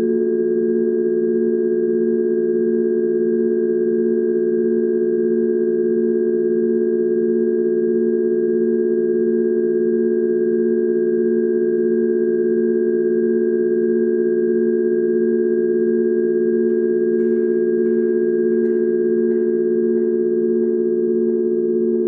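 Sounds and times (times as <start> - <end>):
electronic drone of steady tones: 10.1 - 22.0.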